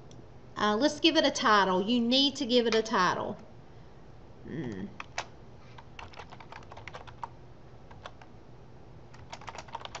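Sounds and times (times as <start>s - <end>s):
typing on a computer keyboard: 5.0s - 7.3s, 7.9s - 8.3s, 9.1s - 10.0s.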